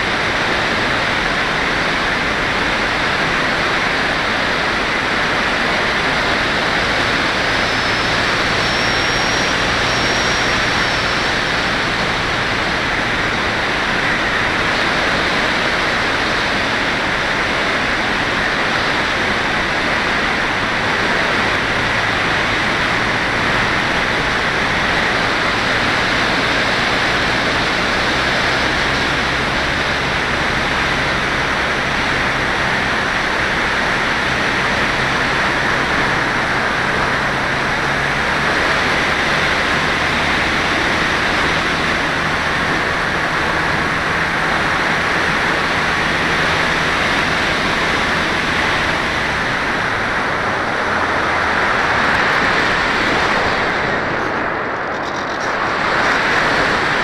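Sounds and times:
rushing wind noise: 0.0s - 57.0s
faint high whistle: 7.4s - 11.5s.

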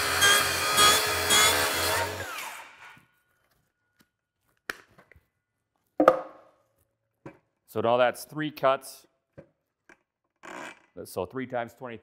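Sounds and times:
saw blade spinning down: 0.0s - 2.9s.

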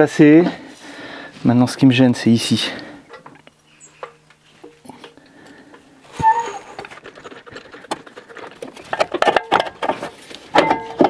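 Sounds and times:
metal clunks and clicks: 7.9s - 11.0s.

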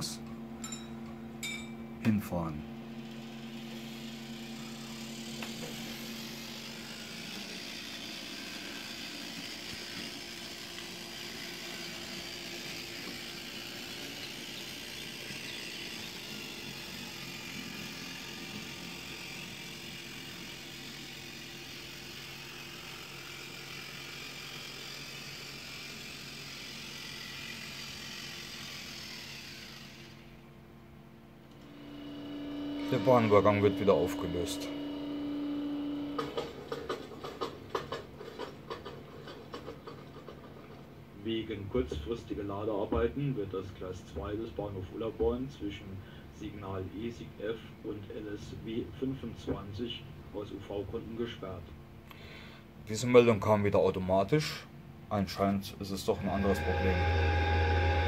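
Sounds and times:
small electric motor whirring: 3.0s - 30.4s, 31.5s - 38.8s, 56.1s - 58.0s
wheels rolling on rails: 36.1s - 40.9s.

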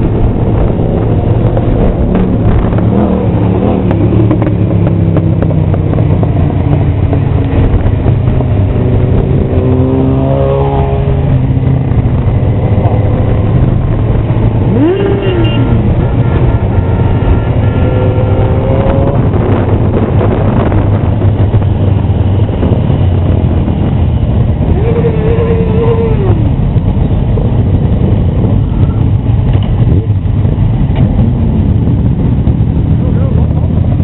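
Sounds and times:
motorcycle engine revving: 0.0s - 34.0s
motorcycle engines rumbling: 0.0s - 34.0s.

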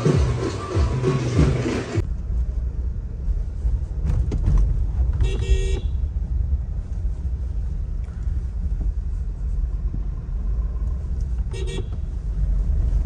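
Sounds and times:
music: 0.0s - 2.0s
car engine and road rumble: 0.0s - 13.0s
car horn toot: 5.2s - 6.0s, 11.5s - 12.0s.

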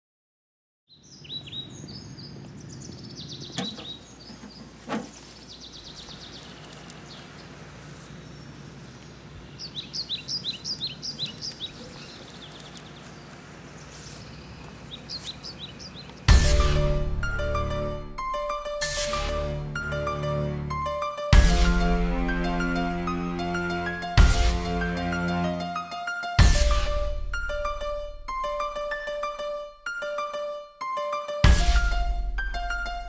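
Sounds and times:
birds chirping: 0.9s - 16.4s.

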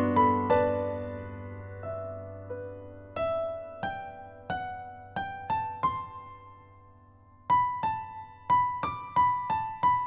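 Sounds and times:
piano notes: 0.0s - 6.8s.

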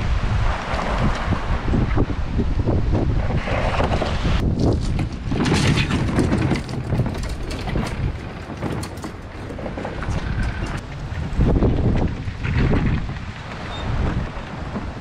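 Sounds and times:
trolley wheels rolling on concrete: 3.3s - 15.0s
gear rattling on trolley: 3.4s - 15.0s.

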